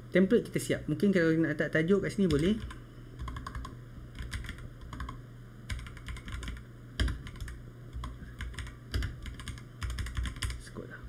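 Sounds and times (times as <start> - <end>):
typing on computer keyboard: 2.2 - 10.6.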